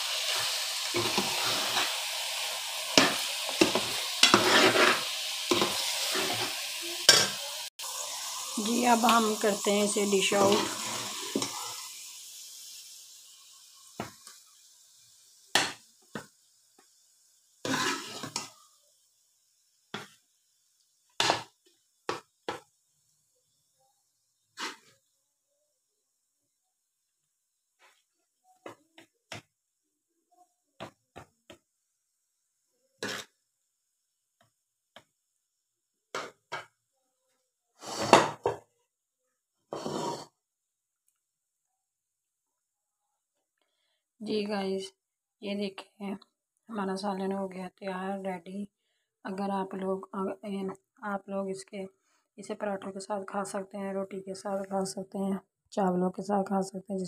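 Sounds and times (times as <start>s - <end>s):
spoon scraping against plate: 17.7s - 18.5s.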